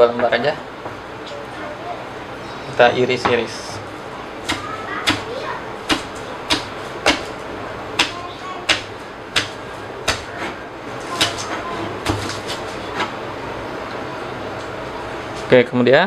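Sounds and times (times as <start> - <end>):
knife chopping on wooden board: 4.4 - 7.4, 8.0 - 13.1.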